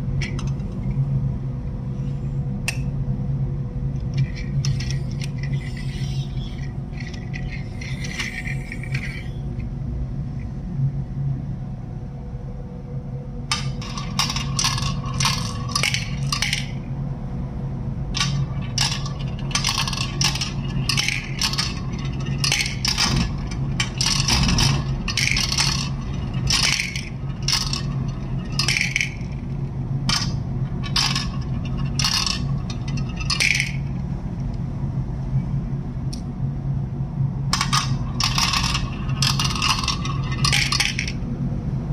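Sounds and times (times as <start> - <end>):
steady low hum: 0.0 - 41.9
plastic marbles clattering: 4.1 - 9.4, 13.5 - 16.8, 18.2 - 29.5, 30.1 - 33.9, 37.5 - 41.2.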